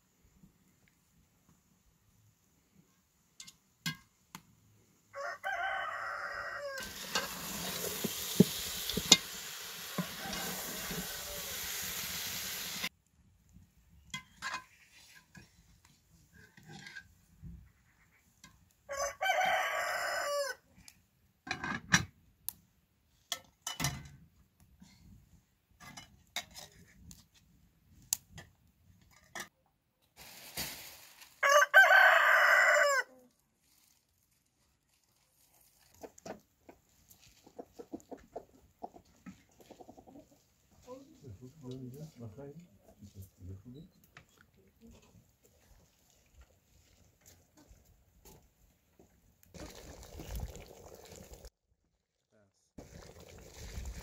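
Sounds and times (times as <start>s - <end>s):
rooster crowing: 5.1s - 7.1s, 9.9s - 11.7s, 18.9s - 20.6s, 31.4s - 33.1s
food sizzling in a pot: 6.8s - 12.9s, 49.6s - 51.5s.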